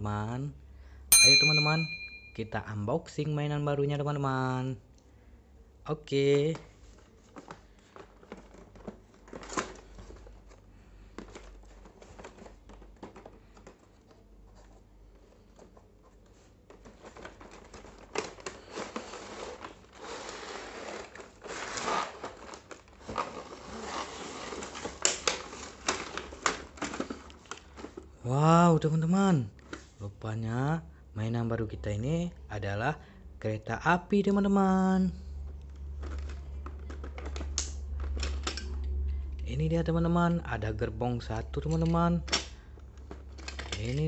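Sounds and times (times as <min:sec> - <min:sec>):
cardboard and plastic crinkling: 0:06.2 - 0:30.0, 0:34.6 - 0:44.0.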